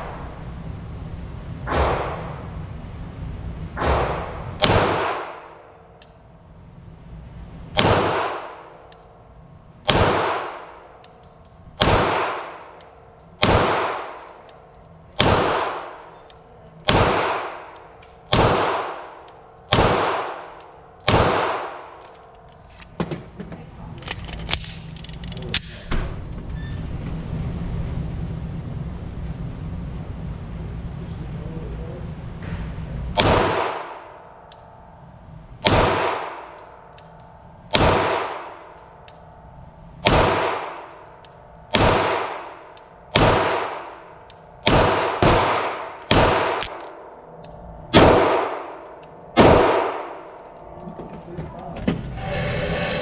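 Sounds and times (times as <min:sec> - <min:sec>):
steady low hum: 0:00.0 - 0:53.0
pistol shots echoing: 0:03.8 - 0:05.8, 0:07.8 - 0:08.8, 0:09.8 - 0:11.0, 0:11.7 - 0:12.8, 0:13.4 - 0:14.4, 0:15.1 - 0:22.0, 0:33.2 - 0:34.3, 0:35.6 - 0:37.0, 0:37.7 - 0:39.0, 0:40.0 - 0:47.2, 0:47.9 - 0:50.4.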